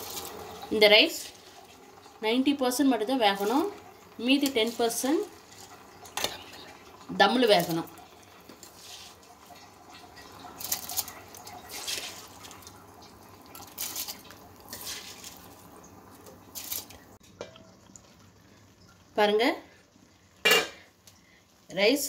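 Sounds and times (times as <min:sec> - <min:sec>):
water boiling and bubbling: 0:00.0 - 0:22.0.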